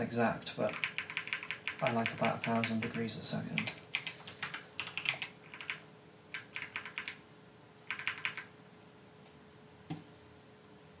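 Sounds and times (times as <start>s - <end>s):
faint steady hum: 0.0s - 11.0s
keyboard typing: 0.7s - 7.2s, 7.8s - 8.5s.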